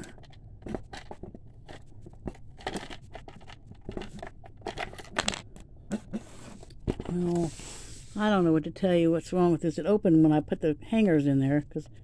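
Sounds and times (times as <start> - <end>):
hard plastic clicks and scraping: 0.0 - 7.1.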